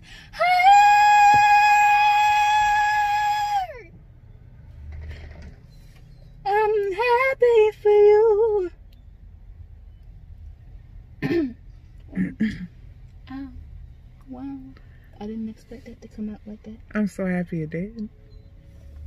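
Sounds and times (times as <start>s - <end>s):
woman singing: 0.3s - 3.8s, 6.5s - 8.8s.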